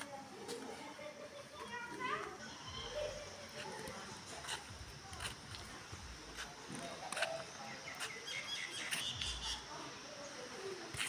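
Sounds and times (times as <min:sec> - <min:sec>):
birds chirping: 0:06.7 - 0:10.8.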